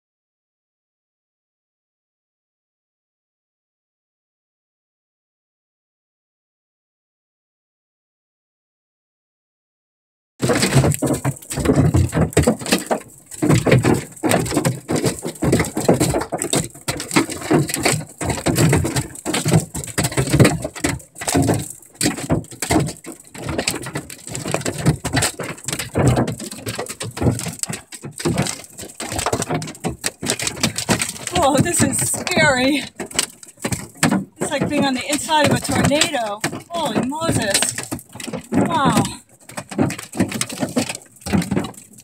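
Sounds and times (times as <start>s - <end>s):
hail and rain drumming on metal: 10.4s - 42.0s.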